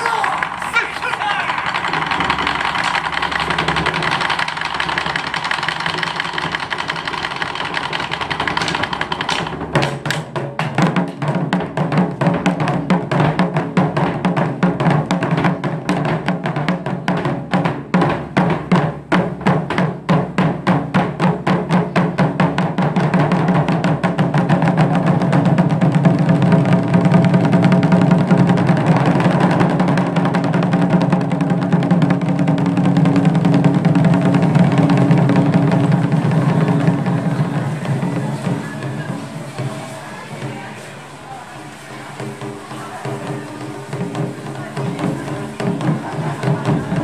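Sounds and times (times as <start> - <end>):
taiko drums playing: 0.0 - 47.0.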